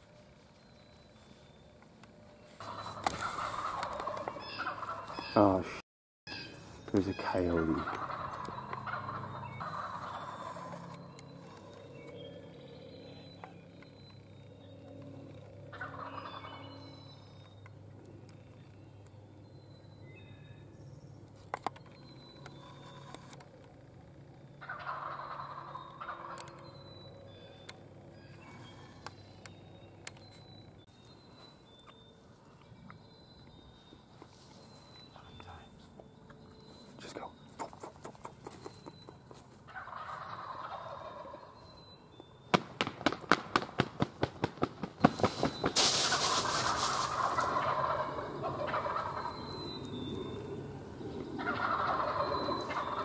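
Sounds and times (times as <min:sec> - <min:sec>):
turkey gobbling: 0:02.6 - 0:05.5, 0:07.1 - 0:10.8, 0:15.7 - 0:16.6, 0:24.6 - 0:26.5, 0:37.5 - 0:41.6, 0:45.3 - 0:49.9, 0:51.1 - 0:53.0
songbird notes: 0:06.3 - 0:42.6, 0:45.0 - 0:53.0.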